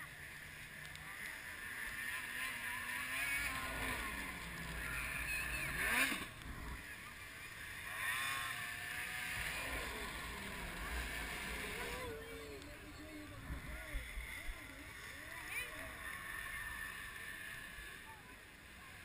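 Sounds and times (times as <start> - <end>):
second snowmobile engine revving: 0.0 - 19.0
snowmobile engine at high revs: 0.0 - 19.0.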